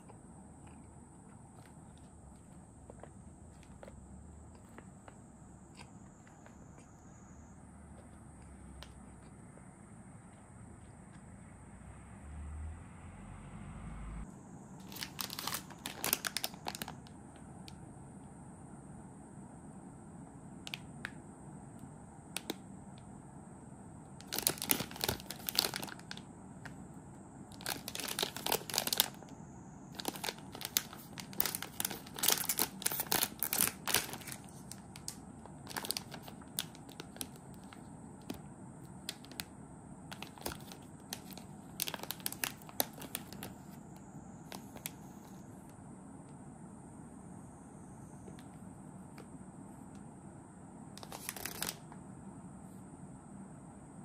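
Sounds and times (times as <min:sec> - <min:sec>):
snack packaging crinkling and tearing: 0:14.8 - 0:17.2, 0:24.2 - 0:26.3, 0:27.5 - 0:29.3, 0:29.9 - 0:38.4, 0:39.0 - 0:39.5, 0:40.1 - 0:43.7, 0:51.0 - 0:51.8.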